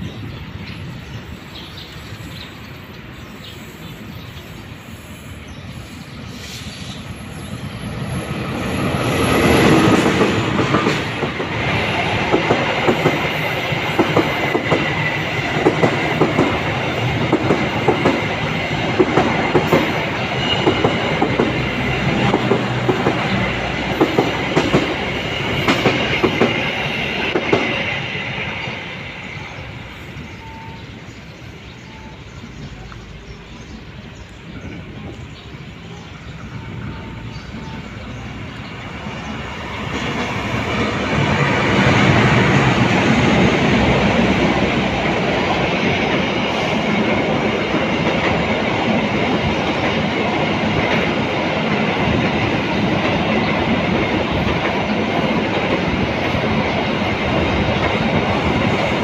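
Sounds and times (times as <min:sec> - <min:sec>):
diesel locomotive engine: 0:00.0 - 0:59.0
train wheels clattering over joints: 0:09.4 - 0:27.8.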